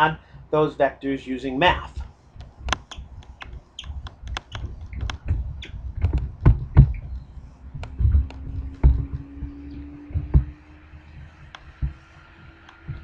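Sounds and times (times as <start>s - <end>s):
faint steady hum: 0.0s - 13.0s
quick clicks: 2.4s - 7.1s.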